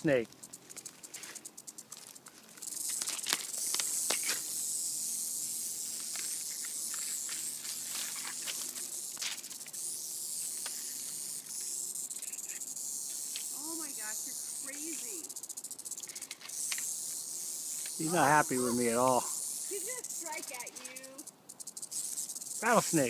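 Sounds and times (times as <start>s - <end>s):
rattlesnake tail rattle buzzing: 0.0s - 23.0s
sharp clicks: 0.2s - 4.8s, 13.0s - 18.0s.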